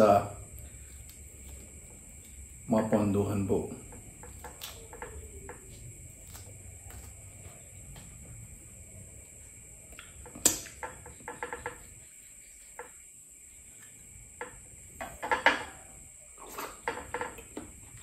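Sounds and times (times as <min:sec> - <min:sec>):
crunching of crispy food: 0:04.2 - 0:08.1.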